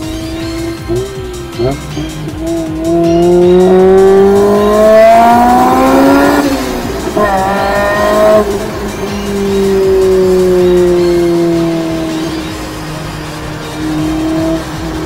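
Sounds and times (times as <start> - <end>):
car engine revving through gears: 0.0 - 15.0.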